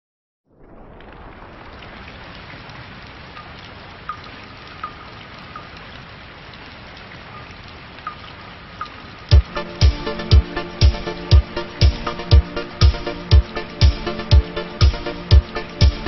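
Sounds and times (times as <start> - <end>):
steady rain falling: 0.5 - 16.0
water drops plinking: 3.3 - 6.1, 7.2 - 16.0.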